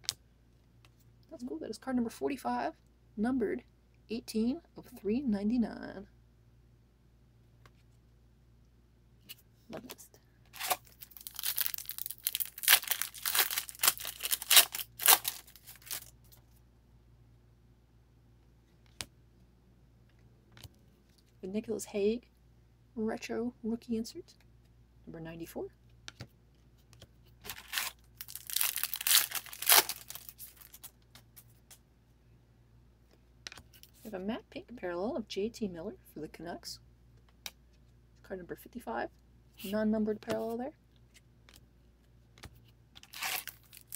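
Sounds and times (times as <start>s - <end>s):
wrapper crinkling: 10.5s - 16.2s, 27.4s - 30.9s, 43.0s - 43.9s
foil card pack tearing open: 10.6s - 16.1s, 27.5s - 30.9s, 43.0s - 43.9s.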